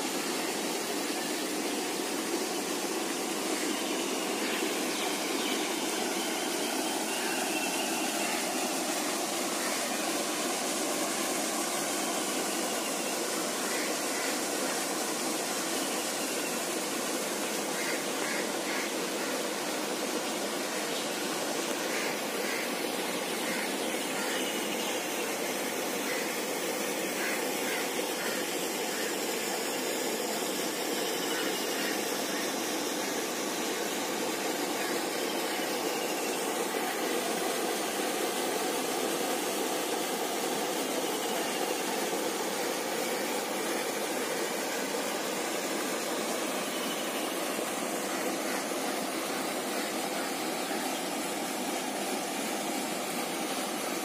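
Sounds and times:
fountain spray splashing: 0:00.0 - 0:54.0.

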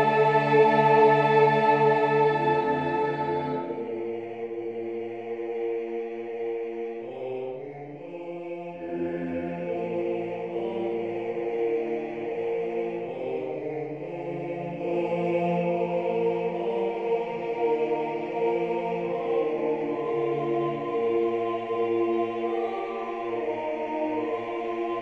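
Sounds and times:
choir singing sustained chords: 0:00.0 - 0:25.0.

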